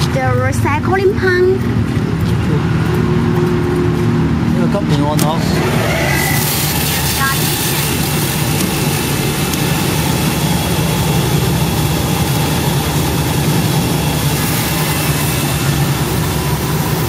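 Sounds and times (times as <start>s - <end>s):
motor hum: 5.0s - 17.0s.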